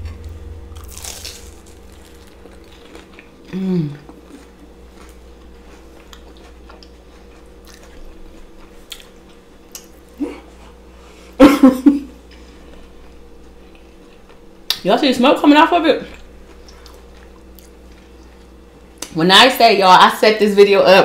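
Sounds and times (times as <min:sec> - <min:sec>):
person chewing crunchy food: 0:00.0 - 0:10.9, 0:16.1 - 0:19.1.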